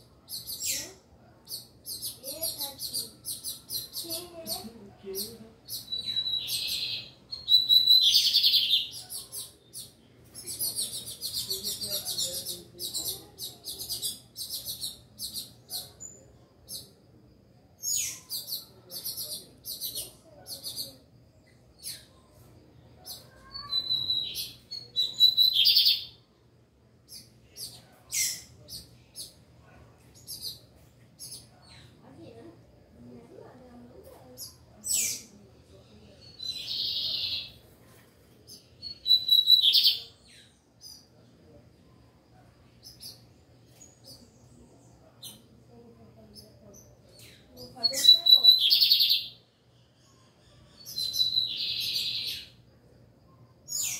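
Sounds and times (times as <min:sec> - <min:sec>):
bird chirping and singing: 0:00.3 - 0:17.0, 0:17.8 - 0:26.2, 0:27.1 - 0:29.4, 0:30.1 - 0:32.0, 0:34.4 - 0:37.6, 0:38.5 - 0:41.1, 0:46.3 - 0:52.6, 0:53.6 - 0:53.9
buzzy bird trill: 0:00.3 - 0:17.0, 0:23.1 - 0:26.2, 0:38.5 - 0:41.1, 0:46.3 - 0:49.4, 0:50.0 - 0:52.6.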